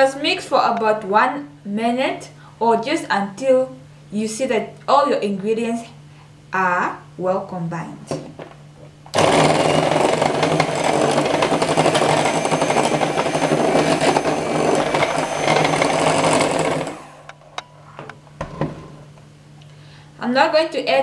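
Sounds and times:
electric hand mixer whirring: 0:09.2 - 0:17.4.

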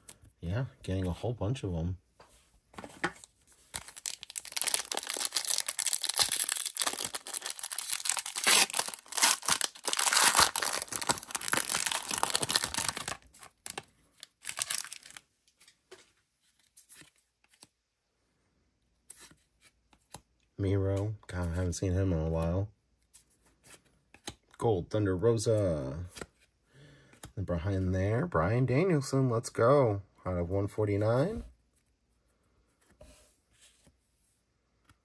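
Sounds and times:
foil wrapper tearing and crinkling: 0:03.8 - 0:13.8, 0:14.4 - 0:15.2.

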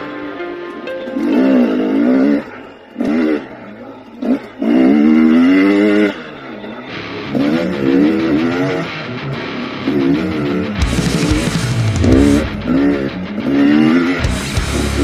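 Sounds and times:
dirt bike engine revving: 0:04.2 - 0:06.4, 0:07.2 - 0:09.0, 0:09.8 - 0:15.0.

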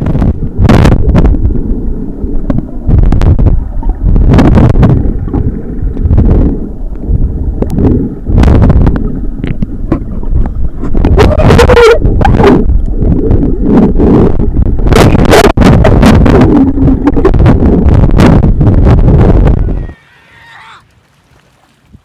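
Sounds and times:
muffled underwater rumble: 0:00.0 - 0:20.5
water splashing: 0:20.0 - 0:22.0.

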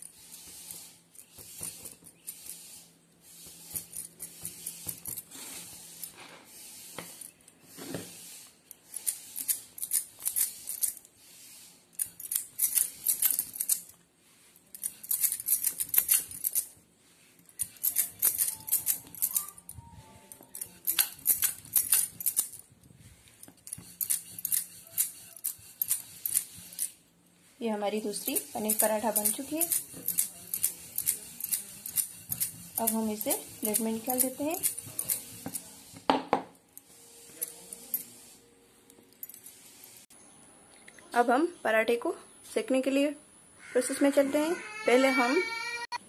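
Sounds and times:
rolling pin rolling dough: 0:00.0 - 0:09.8, 0:14.1 - 0:38.4
glass bangles clinking: 0:17.5 - 0:22.6.

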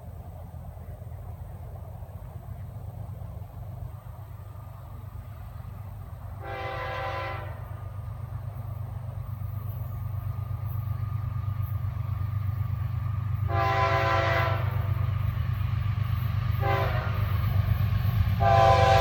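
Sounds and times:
diesel engine rumble: 0:00.0 - 0:19.0
train air horn blasts: 0:06.4 - 0:07.8, 0:13.4 - 0:15.0, 0:16.6 - 0:17.5, 0:18.4 - 0:19.0.

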